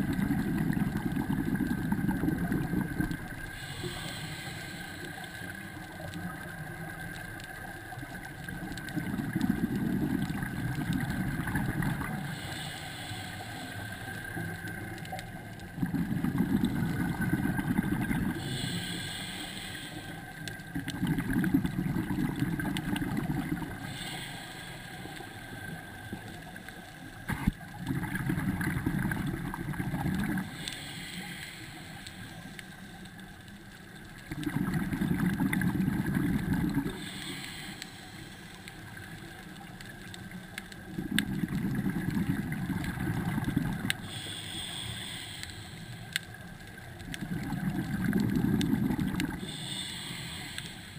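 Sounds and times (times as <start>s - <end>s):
bubbling regulator exhaust: 0.0s - 6.8s, 8.4s - 13.6s, 15.6s - 20.0s, 20.6s - 24.6s, 27.2s - 32.2s, 34.2s - 38.0s, 40.7s - 45.6s, 47.0s - 50.9s
hiss of inhalation: 3.4s - 6.4s, 11.5s - 14.8s, 18.3s - 20.6s, 23.6s - 27.5s, 30.4s - 33.2s, 36.7s - 39.6s, 43.2s - 46.6s, 49.0s - 50.9s.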